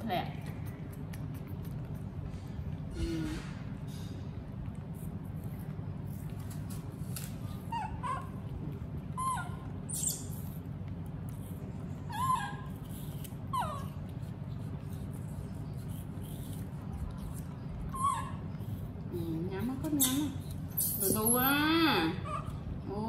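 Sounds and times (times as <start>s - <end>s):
low background hum: 0.0s - 23.0s
baby monkeys calling: 7.7s - 10.6s, 12.0s - 14.0s, 17.9s - 18.5s, 19.8s - 22.7s.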